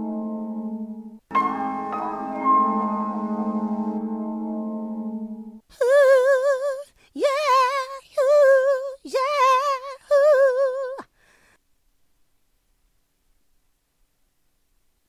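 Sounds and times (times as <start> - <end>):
woman singing with vibrato: 5.7 - 11.1.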